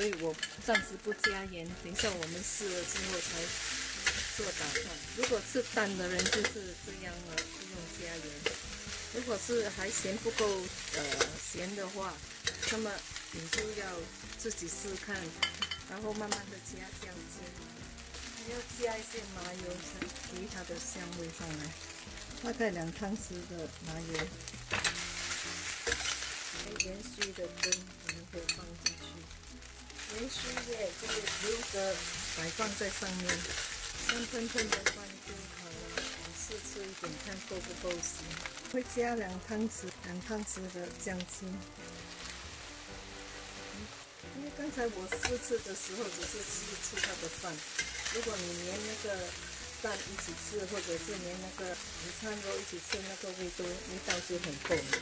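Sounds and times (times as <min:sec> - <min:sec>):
metal spatula scraping a wok: 0:00.0 - 0:13.8, 0:14.9 - 0:17.1, 0:24.0 - 0:29.1, 0:29.9 - 0:35.2, 0:35.8 - 0:37.1, 0:45.1 - 0:55.0
rice sizzling: 0:00.0 - 0:55.0.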